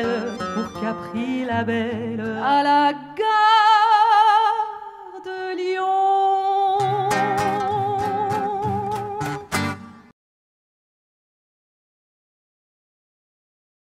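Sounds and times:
live band music: 0:00.0 - 0:01.2, 0:07.1 - 0:10.1
woman singing with vibrato: 0:00.0 - 0:09.5.

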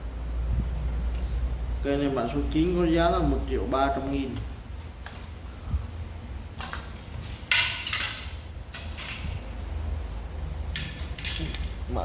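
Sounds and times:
fishing rods scraping and rustling: 0:06.6 - 0:09.6, 0:10.7 - 0:11.8.

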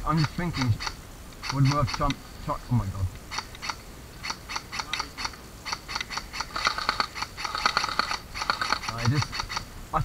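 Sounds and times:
airsoft guns firing: 0:05.8 - 0:09.6.

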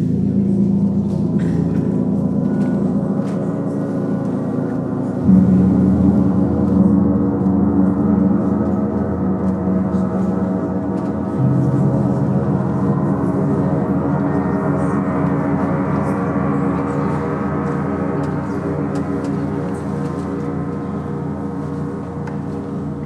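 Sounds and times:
gong struck: 0:00.0 - 0:23.0
gongs ringing: 0:00.0 - 0:23.0.

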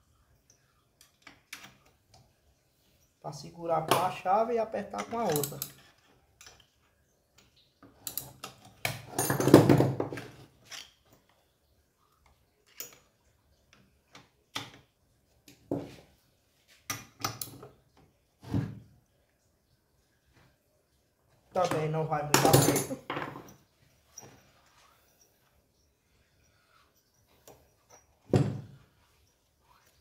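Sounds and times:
wrenches clinking on metal: 0:03.9 - 0:06.8, 0:07.9 - 0:11.0, 0:21.6 - 0:30.0.

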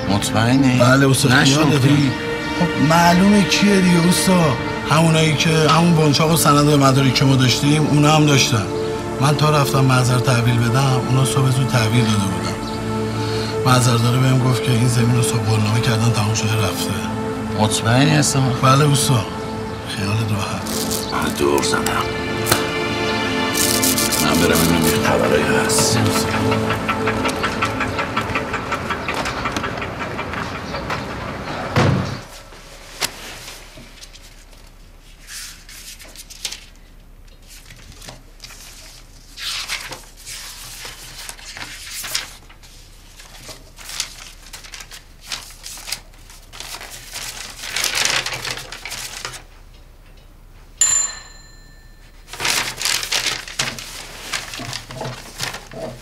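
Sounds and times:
background music: 0:00.0 - 0:32.4
paper rustling: 0:20.0 - 0:22.8, 0:23.4 - 0:27.7, 0:32.3 - 0:49.5, 0:52.2 - 0:56.0
high ringing note: 0:50.8 - 0:53.0.

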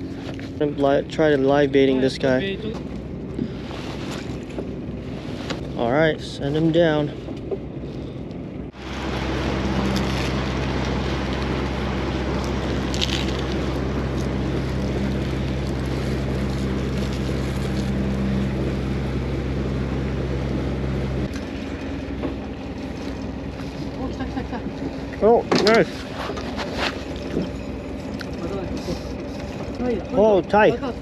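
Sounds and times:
boat engine humming: 0:00.0 - 0:31.0.

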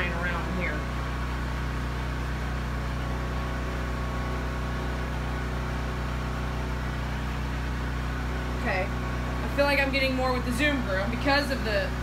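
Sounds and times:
low machine hum: 0:00.0 - 0:12.0.

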